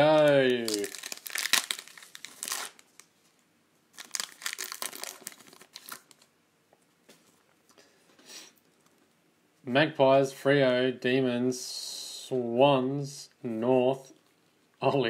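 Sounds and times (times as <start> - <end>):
card pack wrapper crinkling and tearing: 0.0 - 3.1, 3.9 - 6.3.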